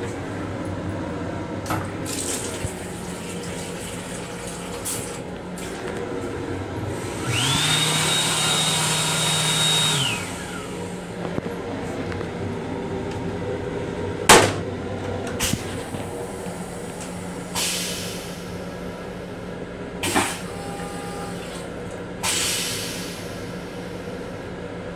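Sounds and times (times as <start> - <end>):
hand dryer whining: 1.8 - 13.9, 20.0 - 21.7.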